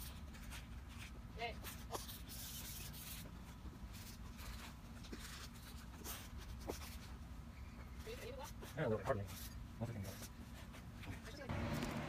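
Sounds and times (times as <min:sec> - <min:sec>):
low steady rumble: 0:11.4 - 0:12.0.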